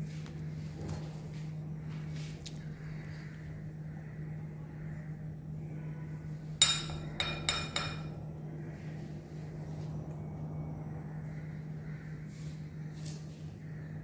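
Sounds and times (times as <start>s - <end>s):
cutlery clinking on glass bowl: 6.6s - 8.2s.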